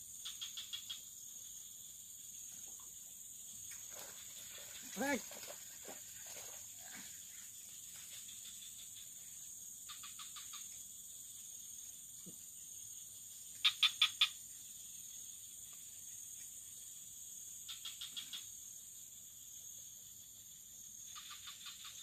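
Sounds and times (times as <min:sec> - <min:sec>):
frogs calling: 0:00.0 - 0:01.8, 0:02.4 - 0:15.4, 0:17.5 - 0:18.8, 0:20.9 - 0:22.0
high insect drone: 0:00.0 - 0:22.0.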